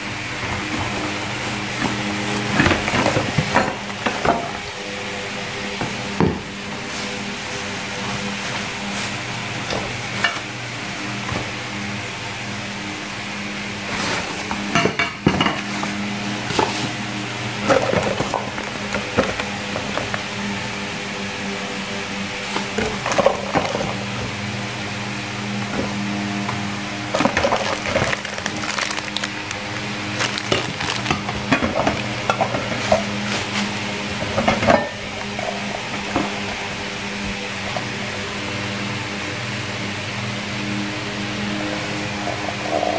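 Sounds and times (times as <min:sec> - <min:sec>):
steady low hum: 0:00.0 - 0:42.9
cardboard and paper rustling: 0:06.8 - 0:11.6, 0:27.1 - 0:36.8
plastic wrapping crinkling: 0:06.9 - 0:11.2, 0:27.1 - 0:33.8.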